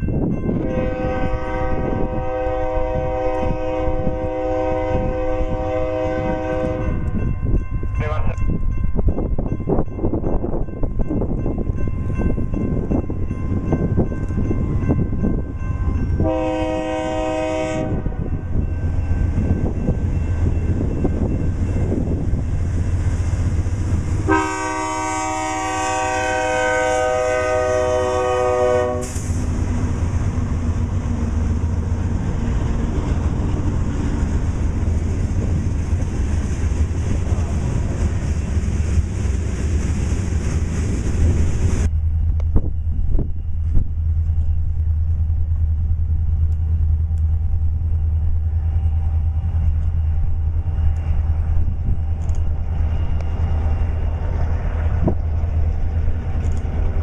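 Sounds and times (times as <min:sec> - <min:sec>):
locomotive rumble: 0:00.0 - 0:57.0
locomotive air horn: 0:00.6 - 0:07.0, 0:16.2 - 0:18.3, 0:24.2 - 0:29.4.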